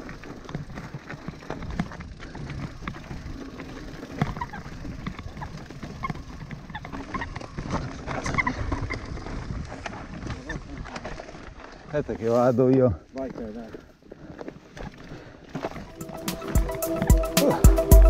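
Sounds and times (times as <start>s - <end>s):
bike rattling on rocky trail: 0.0s - 18.0s.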